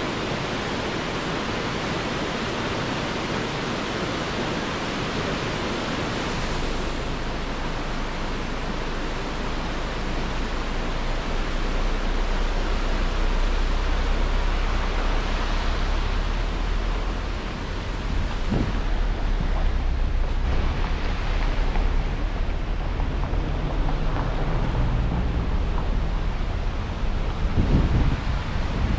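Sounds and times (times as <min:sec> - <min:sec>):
stream rushing over boulders: 0:00.0 - 0:28.9
low rumble: 0:06.2 - 0:28.9.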